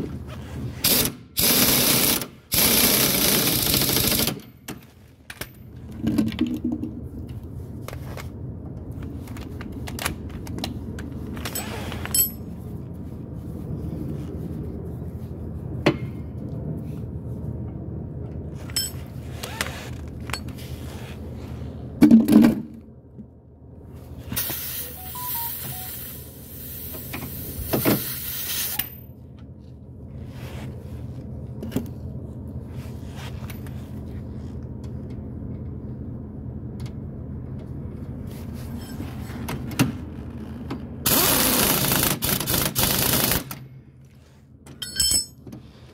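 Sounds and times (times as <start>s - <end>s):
low background hum: 0.0s - 45.9s
tools clinking and scraping on metal: 11.4s - 12.5s, 18.7s - 19.1s, 44.7s - 45.5s.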